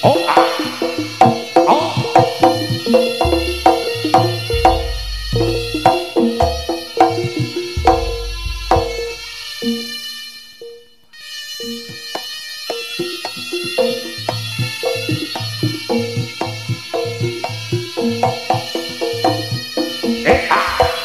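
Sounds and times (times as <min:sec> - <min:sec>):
rapid drum and percussion: 0:00.0 - 0:10.0, 0:11.6 - 0:21.0
pitched melodic notes: 0:00.0 - 0:11.0, 0:11.6 - 0:21.0
very deep bass notes: 0:02.6 - 0:09.9.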